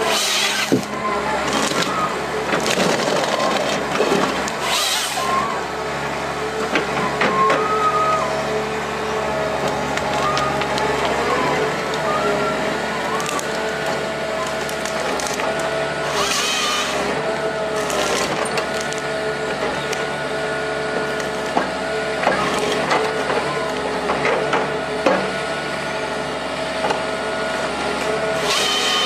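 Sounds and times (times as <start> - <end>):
harvester engine and hydraulics humming: 0.0 - 29.0
wood cracking and splintering: 0.1 - 5.1, 13.1 - 17.0, 17.8 - 19.1.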